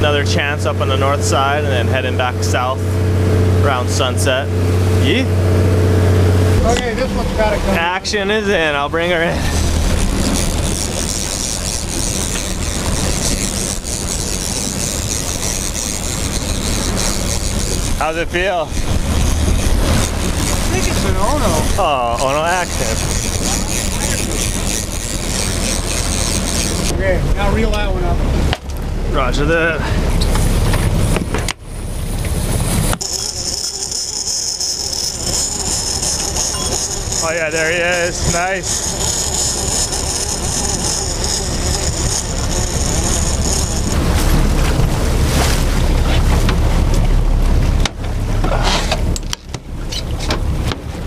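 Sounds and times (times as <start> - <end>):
boat engine drone: 0.0 - 51.0
outboard motor running: 0.0 - 51.0
water wash of wake: 0.0 - 51.0
wind on microphone: 4.5 - 29.1, 35.1 - 51.0.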